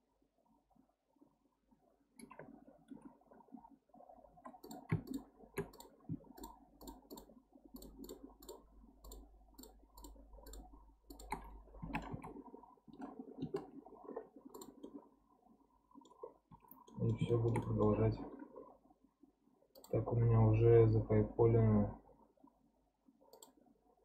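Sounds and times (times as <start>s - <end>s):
faint low hum: 0.0s - 24.0s
computer mouse clicks: 4.4s - 15.0s, 16.0s - 17.9s, 19.7s - 20.1s, 23.3s - 23.6s.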